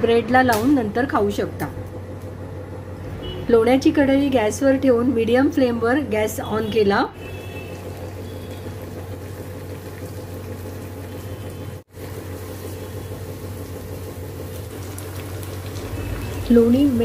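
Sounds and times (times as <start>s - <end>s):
butter sizzling and bubbling: 7.3s - 17.0s.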